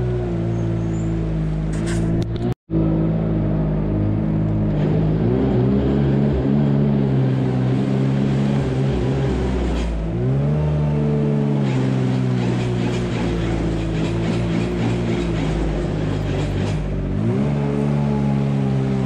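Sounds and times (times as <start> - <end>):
tractor engine revving: 0.0 - 19.0.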